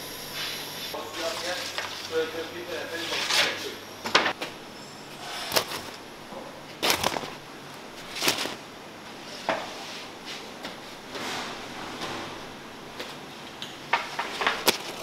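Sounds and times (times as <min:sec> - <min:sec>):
steady background hiss: 0:00.0 - 0:11.5.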